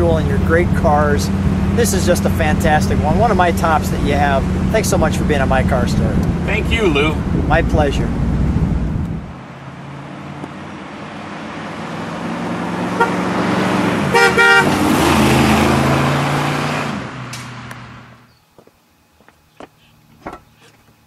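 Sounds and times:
car engine passing by: 0:00.0 - 0:18.3
car horn toots: 0:12.9 - 0:13.3, 0:14.1 - 0:14.8.

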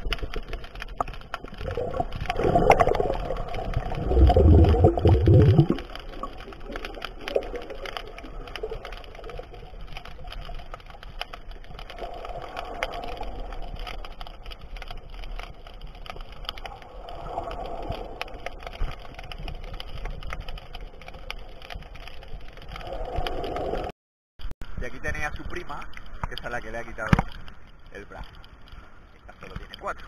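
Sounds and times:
crackling clicks underwater: 0:00.0 - 0:23.9, 0:24.6 - 0:30.0
underwater water noise: 0:00.0 - 0:30.0
muffled swells of sound: 0:01.6 - 0:08.8.

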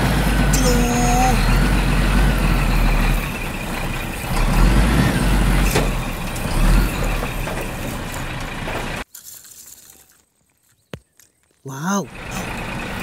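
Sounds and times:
truck engine rumbling: 0:00.0 - 0:09.1, 0:11.7 - 0:13.0.

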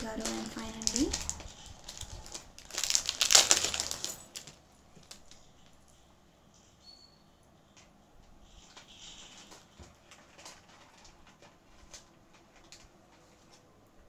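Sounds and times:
paper packet crinkling: 0:00.0 - 0:06.0, 0:08.6 - 0:13.7.

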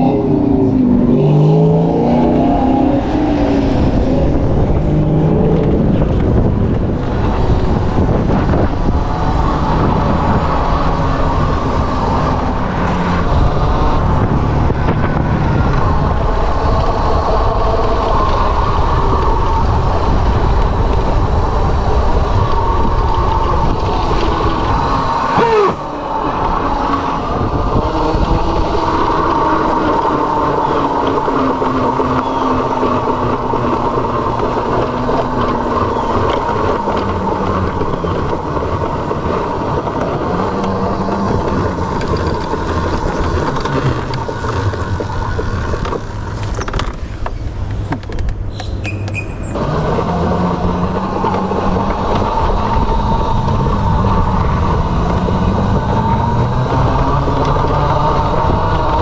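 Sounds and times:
road and wind noise: 0:00.0 - 0:59.0
electric motor whine: 0:49.6 - 0:59.0.

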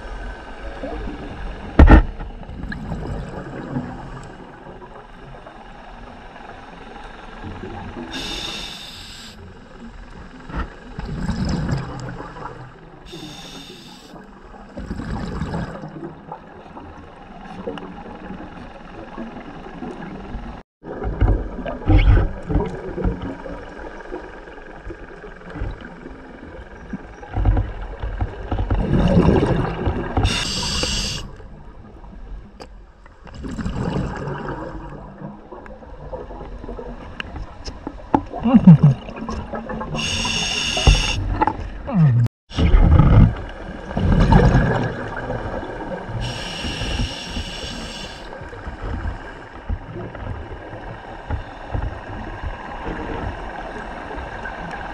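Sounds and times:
bubbling exhaled air: 0:08.1 - 0:09.4, 0:11.0 - 0:14.1, 0:28.8 - 0:31.3, 0:39.9 - 0:45.2, 0:46.0 - 0:48.3
regulator hiss on inhale: 0:08.1 - 0:09.4, 0:13.1 - 0:14.2, 0:30.3 - 0:31.3, 0:40.0 - 0:41.2, 0:46.2 - 0:48.3.

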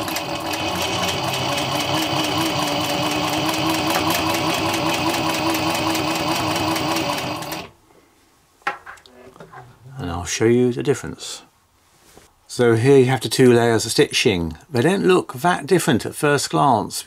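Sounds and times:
clatter of sewing machine stitches: 0:00.0 - 0:07.7
sewing machine motor humming: 0:00.0 - 0:07.8.

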